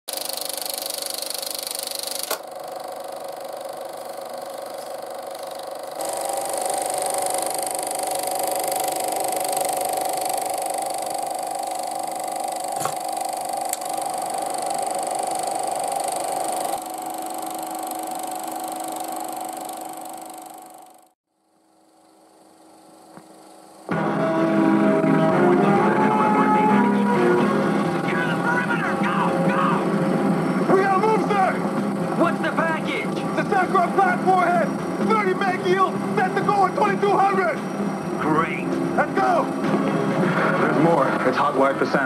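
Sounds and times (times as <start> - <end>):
film projector whirring: 0.0 - 42.0
control clicks: 12.6 - 20.7.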